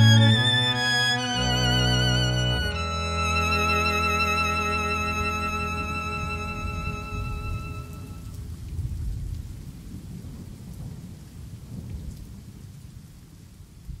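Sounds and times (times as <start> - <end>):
violin music: 0.0 - 8.4.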